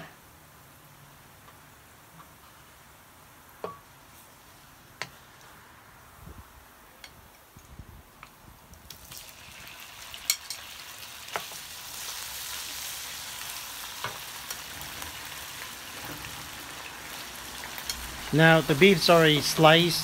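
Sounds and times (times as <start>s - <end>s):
beef sizzling in hot oil: 8.9s - 20.0s.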